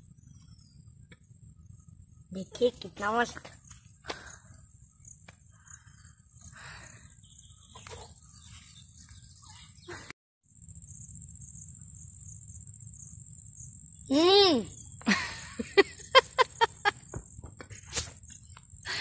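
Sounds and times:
low outdoor rumble: 0:00.0 - 0:09.9
insects trilling high: 0:01.5 - 0:19.0.

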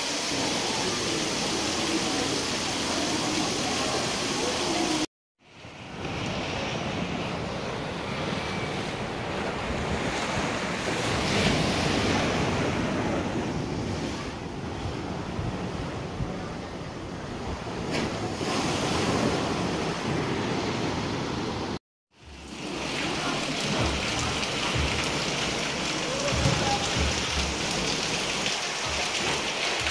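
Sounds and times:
waves washing: 0:00.0 - 0:29.9.

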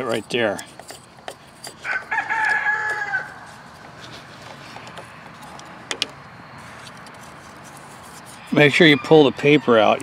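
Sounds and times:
rooster crowing: 0:01.8 - 0:03.6, 0:08.7 - 0:10.0.

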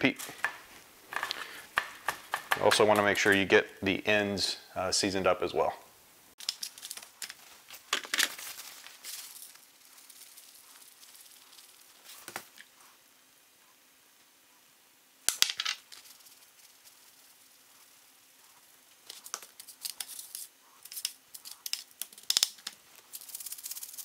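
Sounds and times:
salt sprinkled from shaker: 0:08.4 - 0:12.4, 0:15.8 - 0:21.9, 0:23.0 - 0:24.0.

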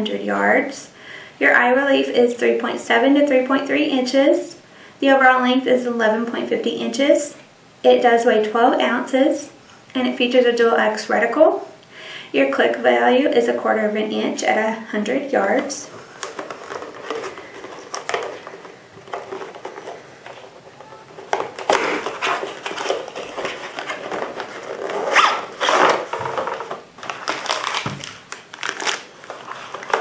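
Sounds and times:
plastic rustling: 0:15.6 - 0:30.0
cardboard flaps scraping: 0:16.0 - 0:30.0.

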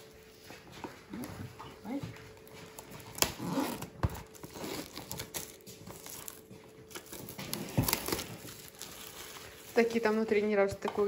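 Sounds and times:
cellophane wrap crinkling: 0:02.3 - 0:11.0.

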